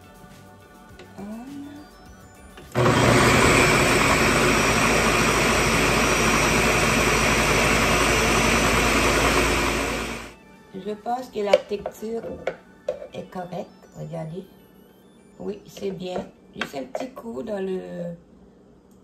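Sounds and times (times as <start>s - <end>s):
blender pureeing vegetables: 2.7s - 10.4s.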